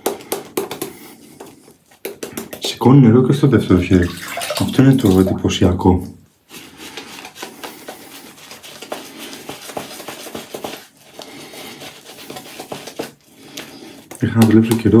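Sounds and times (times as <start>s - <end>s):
shaving brush rubbing lather: 6.5s - 14.8s.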